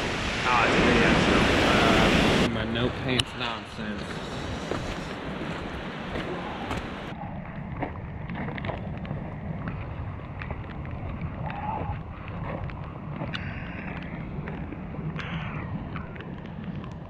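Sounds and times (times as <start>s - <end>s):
wind buffeting microphone: 0.0s - 17.0s
footsteps on wet river stones: 3.9s - 7.1s.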